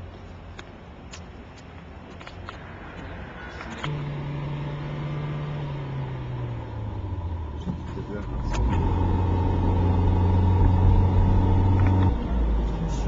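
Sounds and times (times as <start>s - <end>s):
car engine humming: 0.0s - 13.0s.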